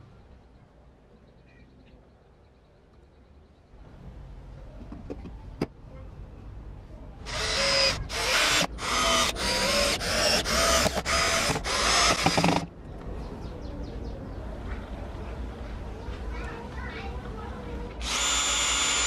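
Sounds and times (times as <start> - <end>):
cordless drill driving screws: 7.3 - 12.7, 18.0 - 19.0.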